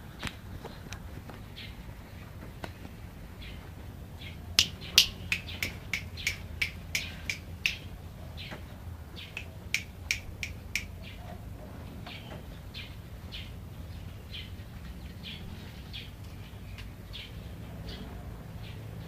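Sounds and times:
bird clicking chip calls: 4.6 - 8.0, 9.2 - 11.2.

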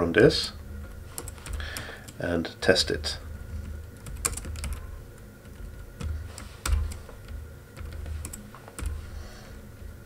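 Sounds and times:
typing on computer keyboard: 1.2 - 2.2, 3.6 - 9.0.

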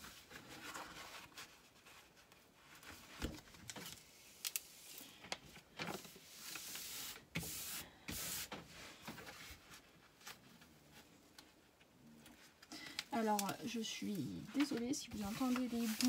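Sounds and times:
canvas rustling and crinkling: 0.0 - 4.1, 13.2 - 16.0.

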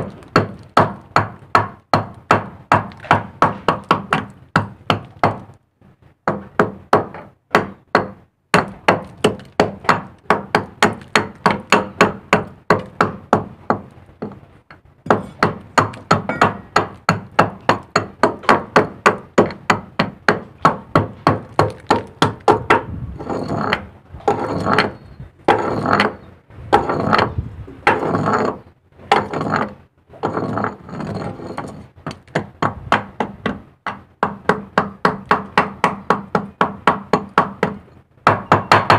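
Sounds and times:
hammer striking chisel on steel: 15.1 - 23.8.

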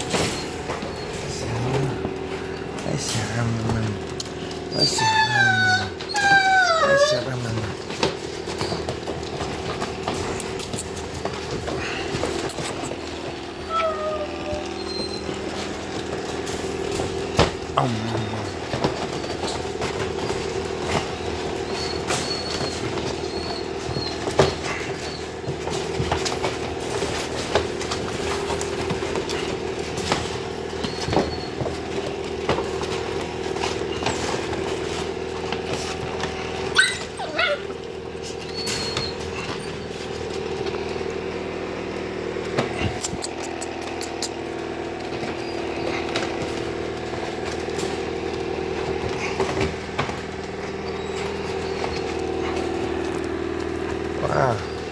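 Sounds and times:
steady low hum: 0.0 - 6.2, 7.1 - 54.9
puppies squeaking and whining: 0.0 - 41.3, 42.1 - 54.9
puppy yelp: 4.7 - 9.5, 13.6 - 16.5, 18.2 - 28.3, 29.0 - 32.0, 32.8 - 35.0, 36.6 - 40.1, 42.8 - 46.7, 50.7 - 53.1.

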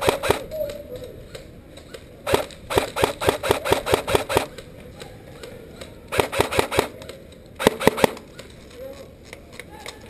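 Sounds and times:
airsoft rifle shots: 0.0 - 0.5, 2.2 - 4.6, 6.1 - 7.0, 7.6 - 8.3.

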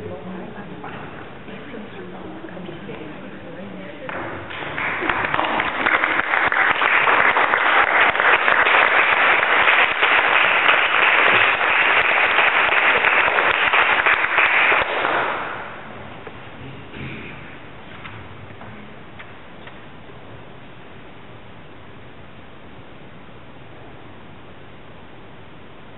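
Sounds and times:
audience applauding: 4.5 - 15.8.

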